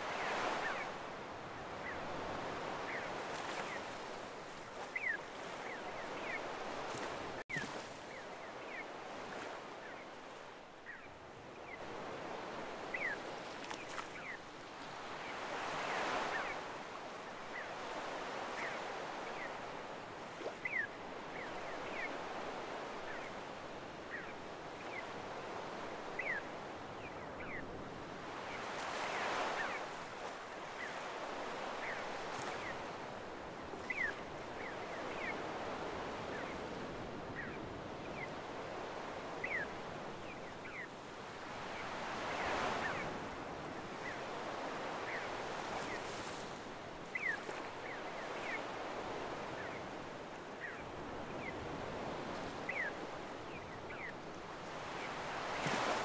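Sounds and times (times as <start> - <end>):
waves washing up beach: 0.0 - 56.0
gulls calling: 1.6 - 10.2.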